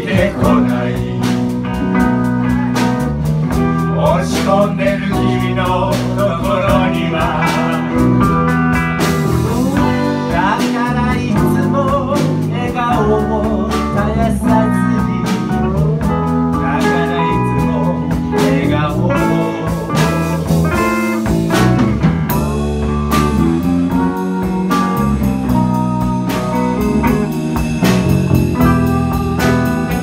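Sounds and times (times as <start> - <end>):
person singing: 0.0 - 3.0, 3.8 - 8.6, 9.2 - 20.5, 28.5 - 30.0
blues band playing: 0.0 - 30.0.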